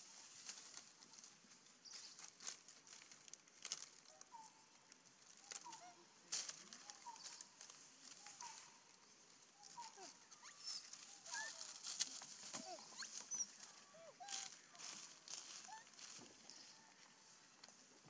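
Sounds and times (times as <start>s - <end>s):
dry leaves and twigs rustling: 0.0s - 18.0s.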